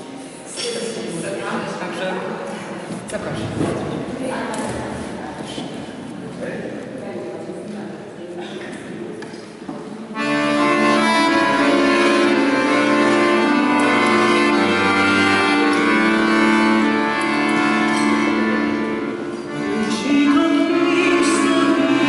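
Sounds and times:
accordion playing tune: 10.2 - 22.0.

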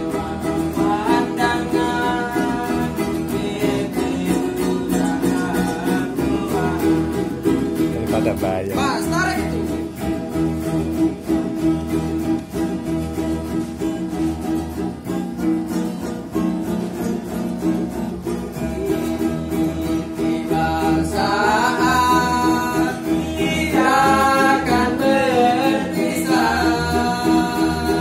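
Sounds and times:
person singing: 0.0 - 9.7, 18.6 - 28.0.

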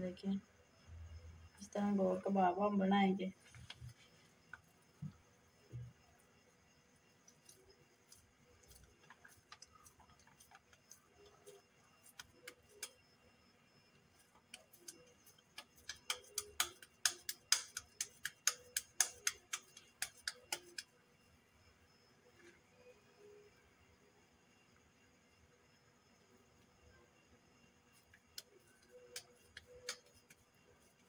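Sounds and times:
hands patting minced meat: 7.4 - 11.0, 14.4 - 20.9, 28.2 - 30.4.

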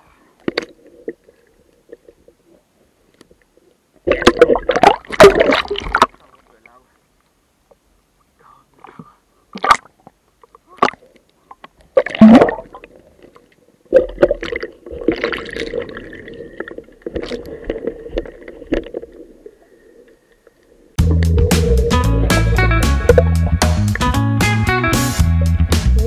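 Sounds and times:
water splashing: 4.0 - 6.6, 12.0 - 19.6.

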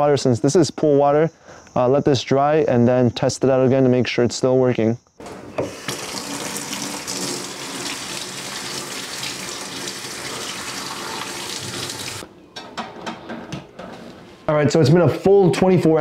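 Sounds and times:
tap water running and splashing: 5.2 - 12.2.

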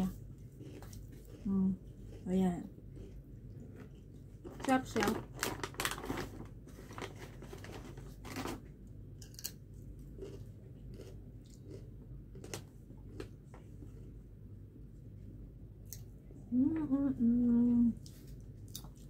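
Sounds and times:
chewing and crunching chips: 0.1 - 8.6, 9.2 - 14.2, 18.0 - 19.0
leaf wrapper rustling: 4.5 - 8.6.

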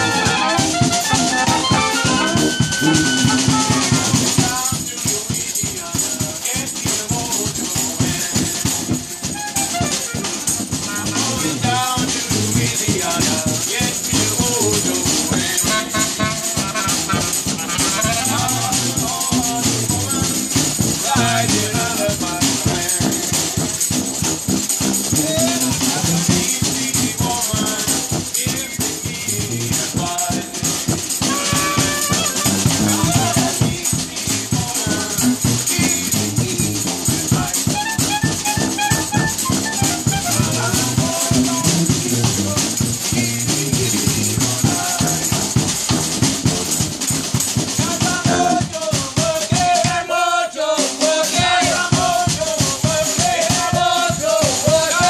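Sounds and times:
clarinet: 0.0 - 4.6, 9.2 - 11.4, 15.6 - 18.8, 31.2 - 33.7, 37.6 - 41.0
sousaphone bass line: 0.0 - 4.6, 14.1 - 22.3, 31.2 - 44.8
trumpet: 0.0 - 5.8, 7.5 - 50.3
trombone: 0.0 - 50.3
fast percussion rhythm: 0.0 - 55.0.

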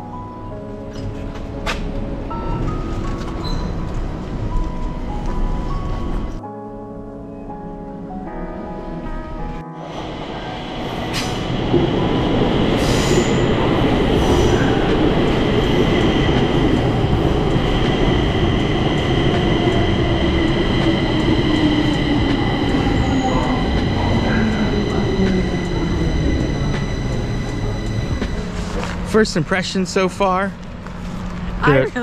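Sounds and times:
train wheels rumbling on rails: 9.8 - 31.6
high wheel squeal: 12.8 - 14.9, 20.8 - 28.9.

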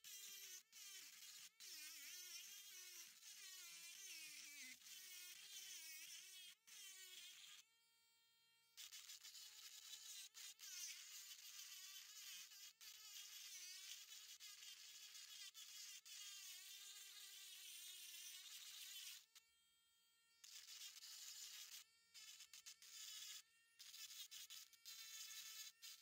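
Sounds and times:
rotary tool grinding rock: 0.0 - 7.6, 20.5 - 26.0.

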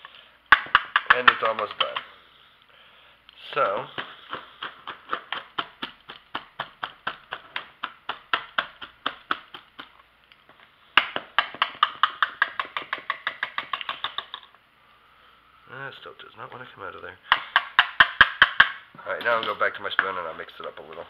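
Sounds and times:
whisk mashing potato in bowl: 3.5 - 10.0.

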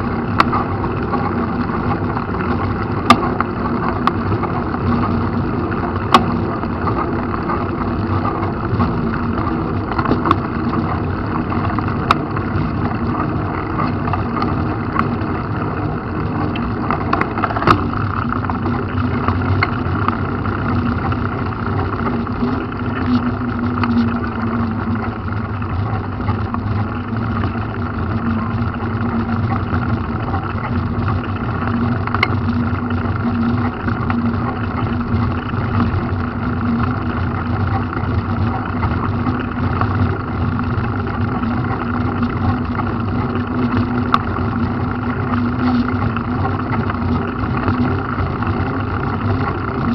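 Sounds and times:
clicks and rattles: 0.0 - 49.9
engine hum: 0.0 - 49.9
road noise: 0.0 - 49.9.

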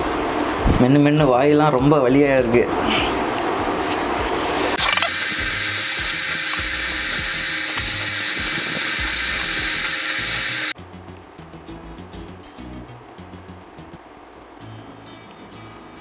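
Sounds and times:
quiet music with light beat: 0.0 - 4.7, 10.8 - 16.0
hissing drill-like whine: 5.1 - 10.8.

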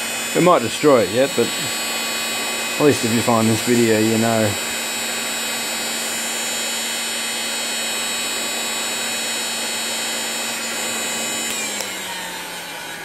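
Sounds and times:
heat gun blowing air: 0.0 - 13.0
heat gun switch click: 10.6 - 12.1.

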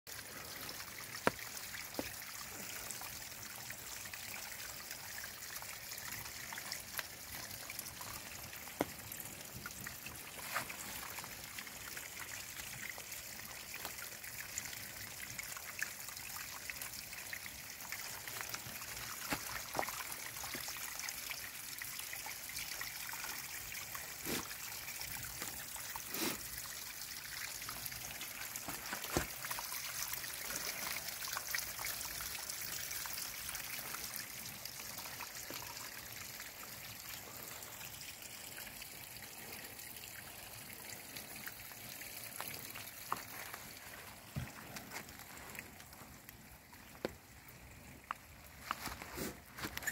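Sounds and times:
stream splashing between rocks: 0.1 - 37.7.

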